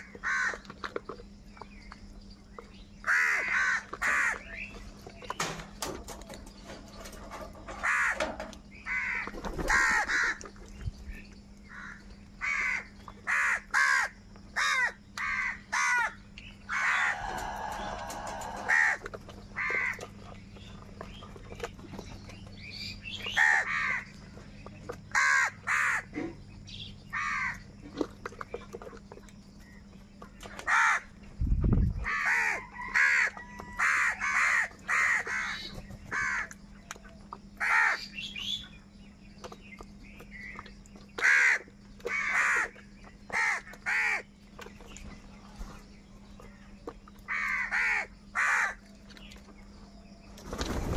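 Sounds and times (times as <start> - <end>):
crows cawing: 0.0 - 0.6, 3.0 - 4.4, 7.7 - 10.4, 11.7 - 20.0, 23.3 - 24.1, 25.1 - 26.1, 27.1 - 27.6, 30.6 - 31.1, 32.0 - 36.5, 37.6 - 38.1, 41.2 - 42.7, 43.3 - 44.3, 47.3 - 48.8.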